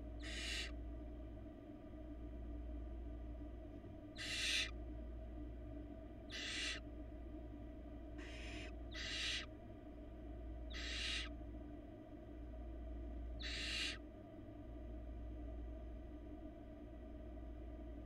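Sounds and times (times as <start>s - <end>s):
steady low hum: 0.0s - 18.0s
owl nestlings hissing: 0.2s - 0.7s, 4.2s - 4.7s, 6.3s - 6.8s, 8.2s - 9.5s, 10.7s - 11.3s, 13.4s - 14.0s.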